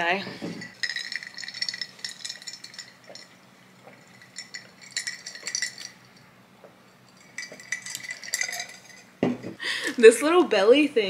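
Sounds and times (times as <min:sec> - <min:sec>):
small hard objects rattling: 0:00.6 - 0:06.0, 0:07.1 - 0:09.1.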